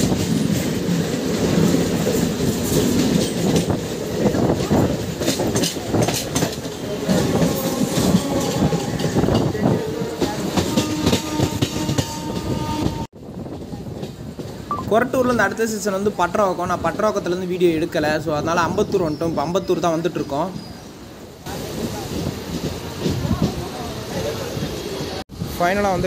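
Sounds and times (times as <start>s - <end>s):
train wheels clattering over rail joints: 0.0s - 14.6s
train passing alongside: 0.0s - 26.0s
train rushing noise: 0.0s - 26.0s.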